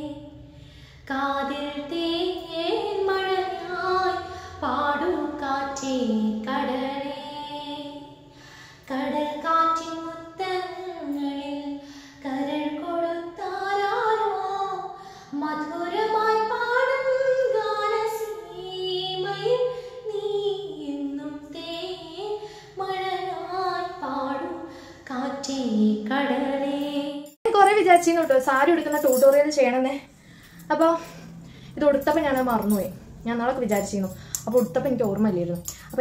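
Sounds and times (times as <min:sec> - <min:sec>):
woman singing unaccompanied: 0:01.0 - 0:08.2, 0:08.9 - 0:29.5.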